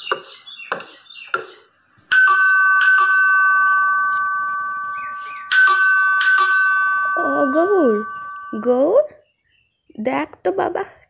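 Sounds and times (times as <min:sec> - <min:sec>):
ding-dong doorbell chime: 0:02.1 - 0:09.1.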